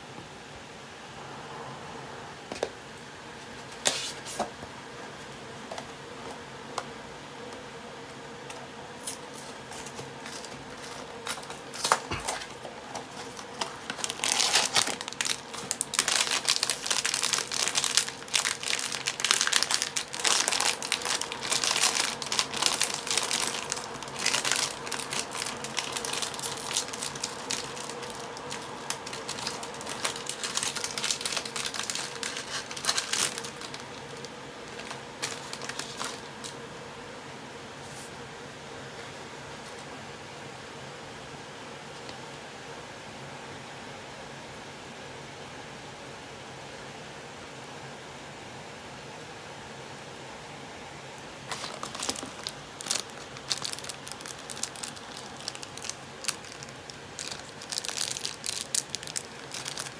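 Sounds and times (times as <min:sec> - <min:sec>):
foil bag crinkling: 0:09.0 - 0:36.6, 0:51.4 - 0:59.9.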